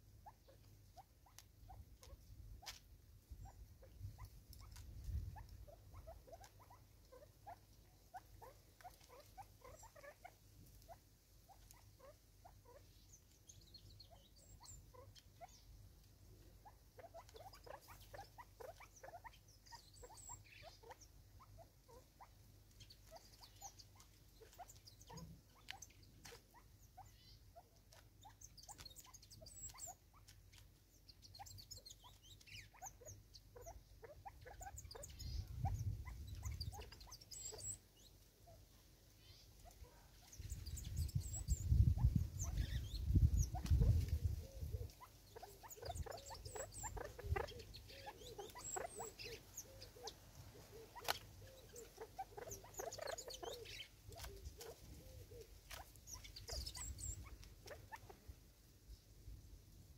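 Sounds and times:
faint high bird chirps: 0.0 - 15.8, 16.4 - 58.3
birds pecking on wood: 8.2 - 9.7, 27.8 - 31.1, 43.5 - 56.7.

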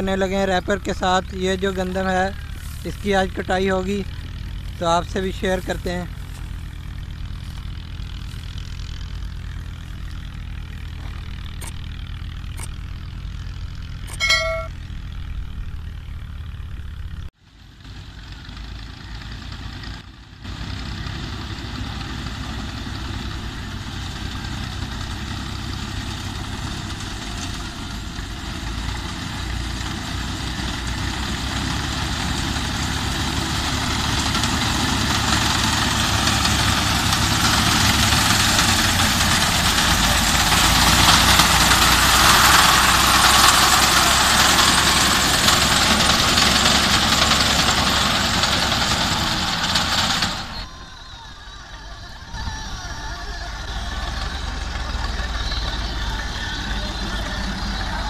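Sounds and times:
tractor engine running: 0.0 - 58.0
short ringing ding: 14.1 - 14.9.

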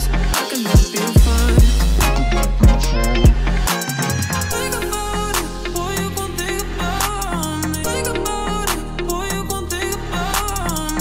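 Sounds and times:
sustained notes: 1.0 - 10.3
deep kick drum hits: 1.2 - 3.5.

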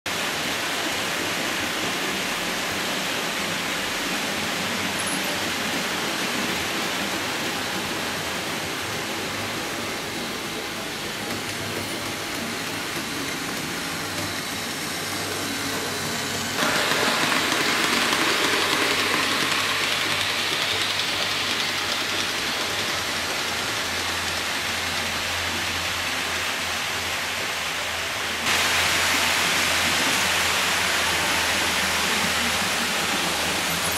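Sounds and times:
model trains rushing hiss: 0.1 - 33.9.

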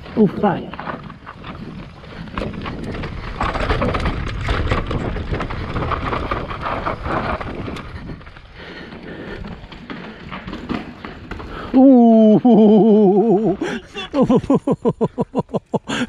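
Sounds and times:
bike rattling over rocks: 0.0 - 16.0
bike tyres crunching on dirt: 0.0 - 16.0
wind buffeting microphone: 0.9 - 10.2.

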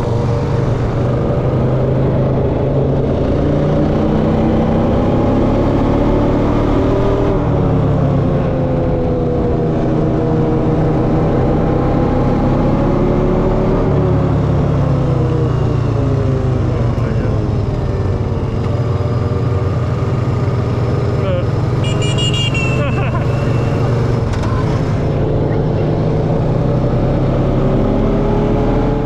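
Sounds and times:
quad bike engine running: 16.2 - 28.3.

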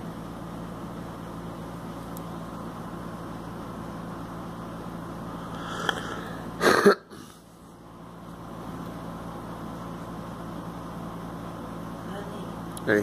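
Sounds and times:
steady low hum: 0.0 - 13.0
woman coughing: 6.6 - 7.1.

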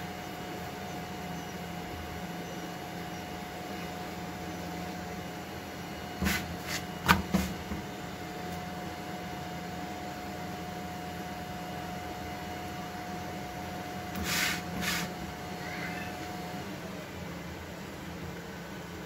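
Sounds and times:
low background hum: 0.0 - 19.0
flatbread slapping on griddle: 6.2 - 7.8, 14.1 - 15.2
knocks on a griddle: 7.0 - 7.8.

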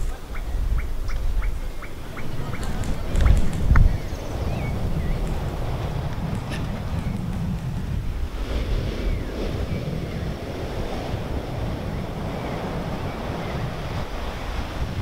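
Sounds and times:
surf and wind rushing: 0.0 - 15.0.

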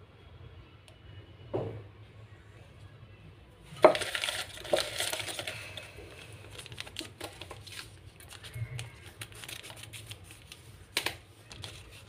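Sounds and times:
paper rustling and crinkling: 3.8 - 12.0.

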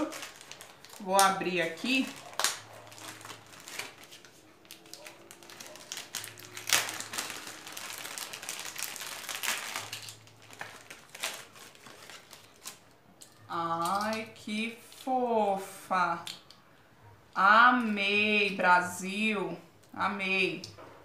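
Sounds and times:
plastic packaging crinkling: 0.0 - 15.1.

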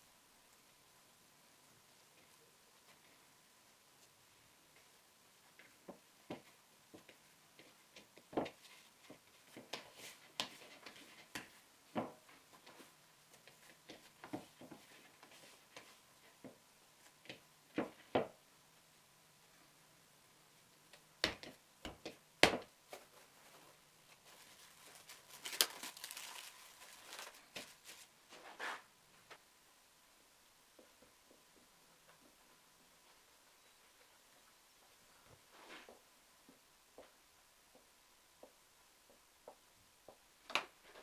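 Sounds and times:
cling film crinkling: 24.1 - 28.1.

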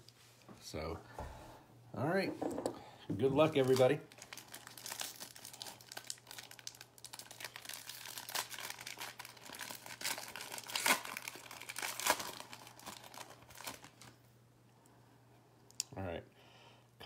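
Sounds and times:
wrapper tearing and crinkling: 3.6 - 14.2.

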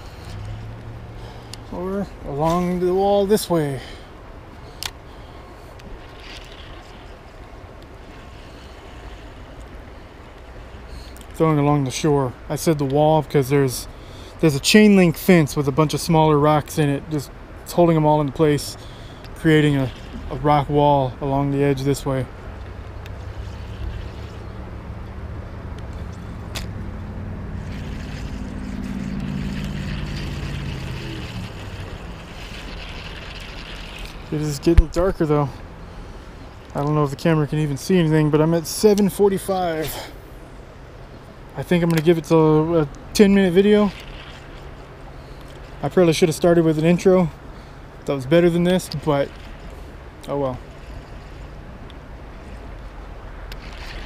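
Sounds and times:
vehicle engine passing: 0.0 - 4.1, 18.8 - 36.5
low outdoor rushing noise: 0.0 - 54.0.

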